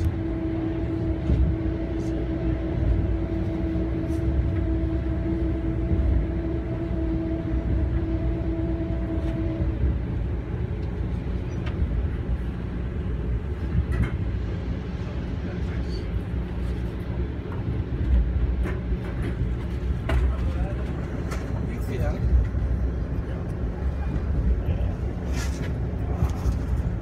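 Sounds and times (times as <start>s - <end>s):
train wheels rumbling on track: 0.0s - 27.0s.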